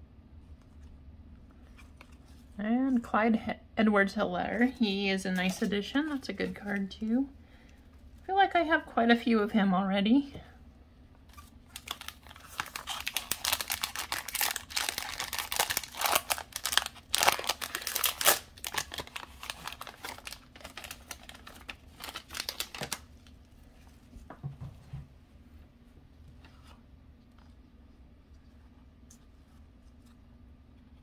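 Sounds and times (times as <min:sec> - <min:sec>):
plastic wrapper crinkling and tearing: 0:11.2 - 0:23.5.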